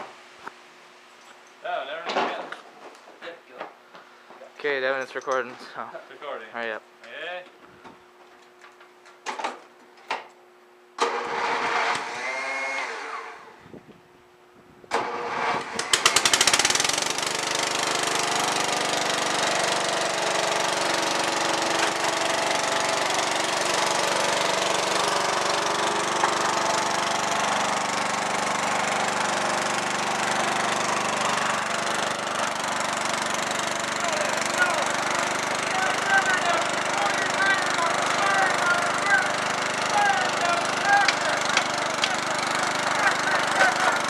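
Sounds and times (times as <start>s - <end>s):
engine cranking: 11.0s - 13.1s, 14.9s - 44.0s
lawn tractor engine running: 11.0s - 13.1s, 14.9s - 44.0s
tires spinning on concrete: 11.0s - 13.4s.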